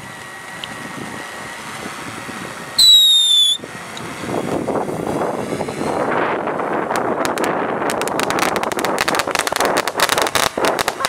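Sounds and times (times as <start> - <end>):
crackling rush: 0.0 - 11.0
drone propeller hum: 0.0 - 11.0
firework sparks hissing: 0.0 - 11.0
whistling firework shriek: 2.8 - 3.7.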